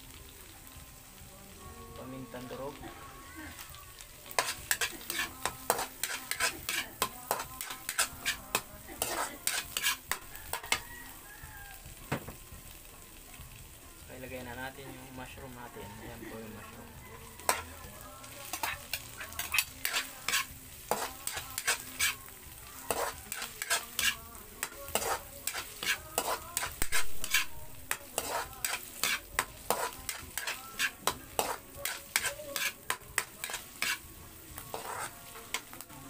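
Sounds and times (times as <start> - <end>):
food sizzling in butter: 0.0 - 36.0
metal spatula scraping a wok: 3.6 - 11.0, 17.4 - 35.8.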